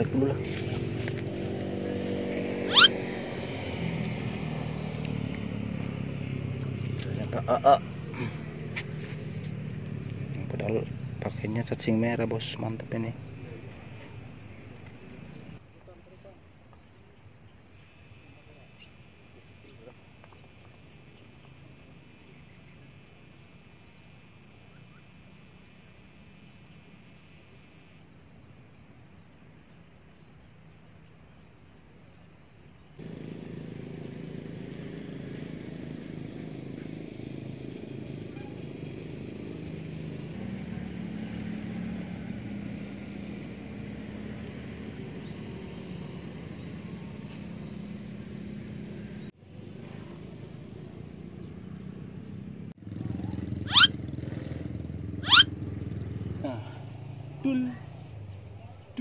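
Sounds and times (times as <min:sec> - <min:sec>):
hum of road traffic: 0:00.0 - 0:59.0.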